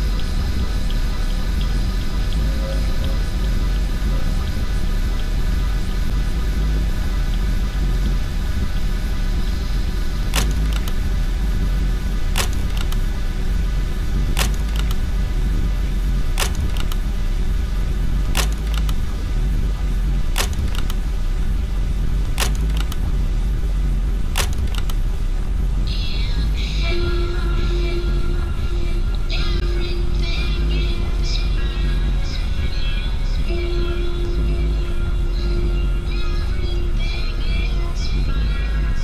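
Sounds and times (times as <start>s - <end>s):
dense low rumble: 0.0s - 39.0s
lamp switch clicking: 10.3s - 11.0s, 12.4s - 13.1s, 14.4s - 15.0s, 16.4s - 17.0s, 18.3s - 19.0s, 20.4s - 21.0s, 22.4s - 23.0s, 24.4s - 25.0s.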